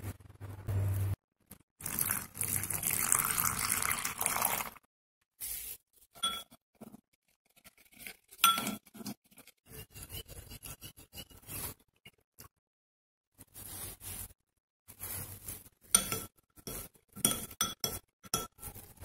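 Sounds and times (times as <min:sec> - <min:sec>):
water pouring into bowl: 0:01.8 - 0:04.8
metal spoon stirring batter: 0:06.2 - 0:12.5, 0:14.9 - 0:19.0.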